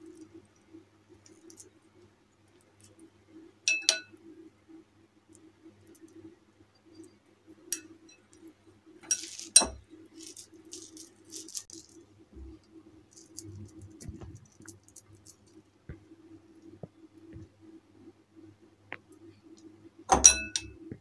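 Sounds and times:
clinks against glass bowl: 0:03.7 - 0:04.1, 0:20.1 - 0:20.8
hands scraping and rustling mixture: 0:07.8 - 0:15.7
low hum: 0:11.8 - 0:17.6.

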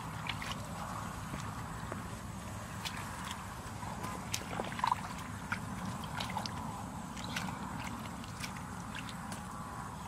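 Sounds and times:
splashes and squelches in muddy water: 0:00.0 - 0:10.0
steady low rumble: 0:00.0 - 0:10.0.

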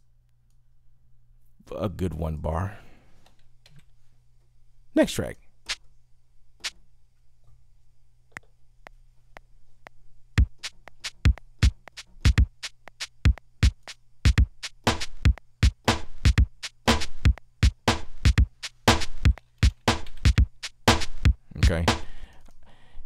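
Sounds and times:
drum machine kick and snare: 0:10.4 - 0:22.2.

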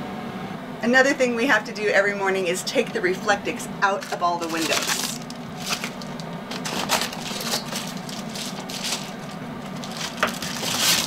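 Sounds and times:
steady low hum: 0:00.0 - 0:11.0
foil insulation crinkling: 0:03.9 - 0:11.0.

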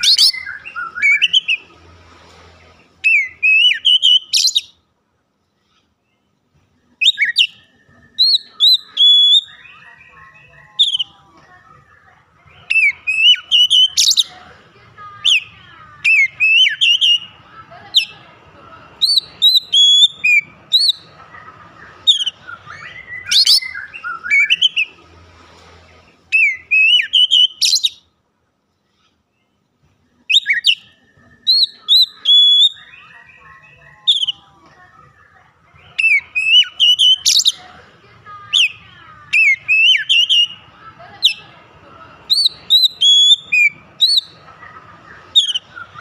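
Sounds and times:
bird singing whistled notes: 0:00.0 - 0:01.7, 0:03.0 - 0:04.8, 0:07.0 - 0:11.2, 0:12.6 - 0:14.3, 0:16.1 - 0:17.4, 0:19.0 - 0:21.0, 0:22.0 - 0:25.0, 0:26.3 - 0:28.1, 0:30.3 - 0:34.4, 0:35.9 - 0:37.6, 0:38.5 - 0:40.6, 0:42.3 - 0:44.4, 0:45.3 - 0:46.0.

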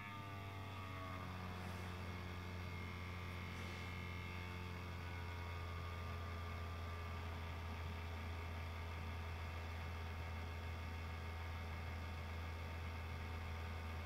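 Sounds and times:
faint whining tones: 0:00.0 - 0:09.4
laptop low hum: 0:00.0 - 0:14.0.

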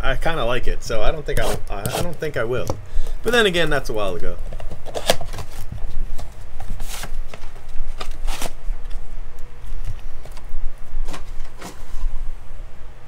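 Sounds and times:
steady low hum: 0:00.0 - 0:13.0
cardboard rustling and tapping: 0:04.4 - 0:09.0.

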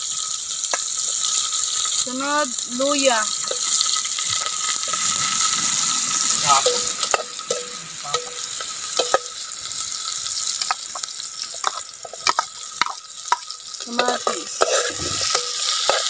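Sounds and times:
onion and garlic sizzling: 0:00.0 - 0:16.0
metal spatula knocking on pot: 0:06.7 - 0:09.4, 0:11.6 - 0:16.0.

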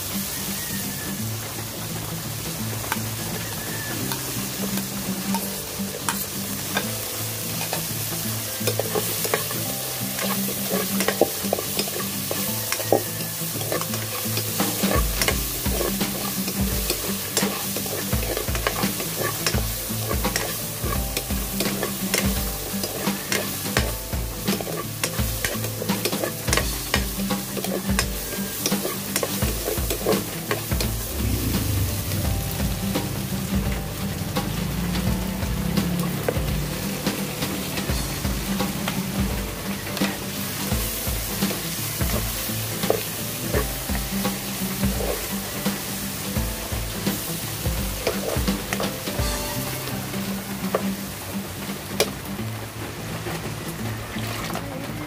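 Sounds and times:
meat sizzling in a wok: 0:00.0 - 0:54.6
metal ladle scraping pan: 0:04.1 - 0:46.3.

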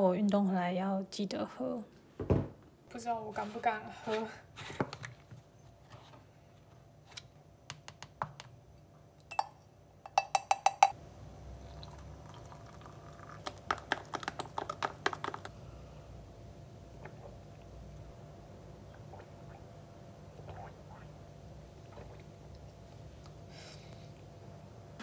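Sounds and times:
ringing taps on glass: 0:09.3 - 0:11.0
spoon clinking against glass: 0:09.3 - 0:11.0
water pouring into glass mug: 0:11.6 - 0:14.6.

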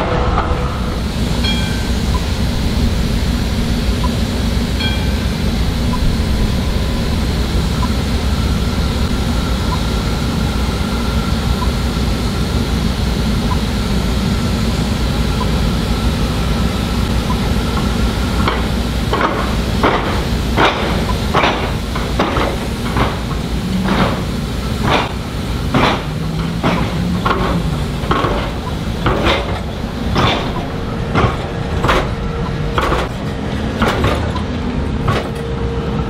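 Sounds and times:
tram rumbling: 0:00.0 - 0:36.0
wheels clacking over rail joints: 0:17.3 - 0:35.6.

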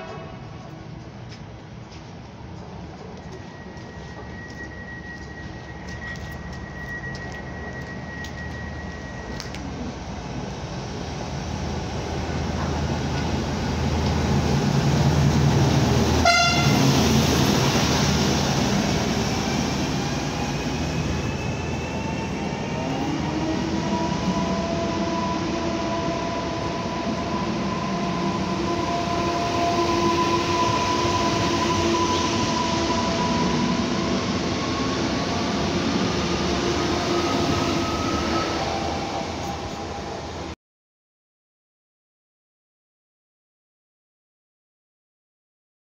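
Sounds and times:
short train horn toot: 0:00.0 - 0:00.6, 0:16.2 - 0:16.9
train rolling noise: 0:00.0 - 0:40.6.

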